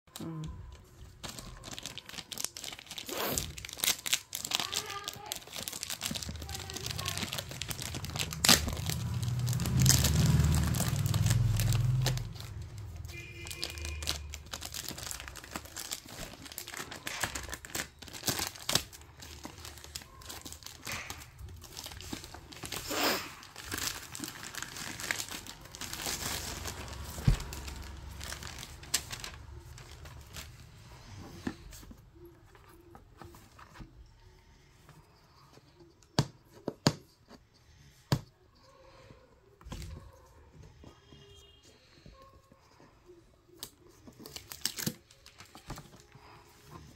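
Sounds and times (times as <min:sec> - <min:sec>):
plastic wrapping crinkling and tearing: 0:00.1 - 0:32.2, 0:43.5 - 0:46.9.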